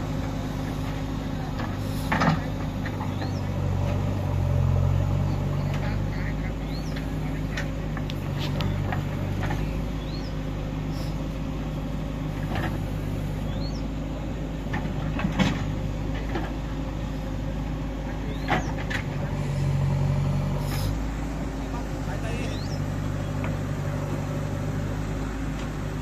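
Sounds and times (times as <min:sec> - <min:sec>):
diesel engine running: 0:00.0 - 0:26.0
backhoe digging in soil: 0:18.3 - 0:21.1.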